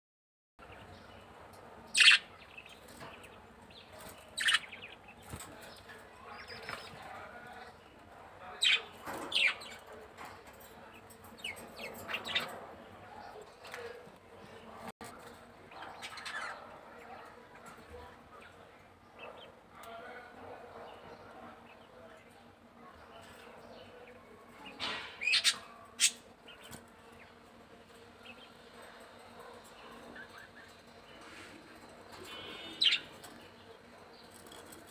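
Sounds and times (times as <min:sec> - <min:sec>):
budgerigars chirping: 0:01.9 - 0:02.8, 0:04.4 - 0:05.0
budgerigars calling: 0:02.0 - 0:02.3
faint bird chirps: 0:32.1 - 0:33.2.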